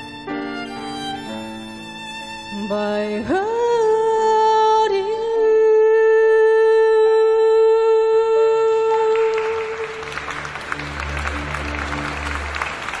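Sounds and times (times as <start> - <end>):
woman singing a long note: 2.5 - 10.2
audience applause: 9.1 - 13.0.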